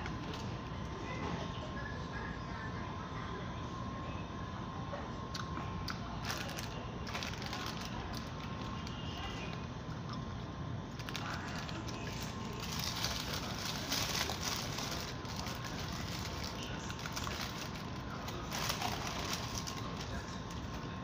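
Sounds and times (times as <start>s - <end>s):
steady background noise: 0.0s - 21.0s
paper wrapper crinkling: 6.1s - 10.2s, 10.9s - 21.0s.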